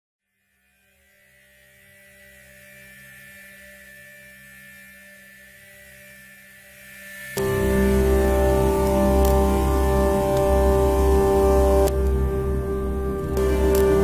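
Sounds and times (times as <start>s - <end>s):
electric hum: 7.3s - 14.0s.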